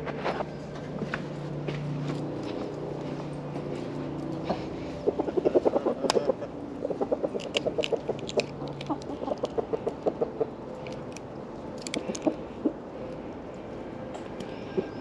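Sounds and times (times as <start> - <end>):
chickens clucking: 4.3 - 11.0, 11.8 - 12.9
egg cracking against tree: 7.1 - 12.4.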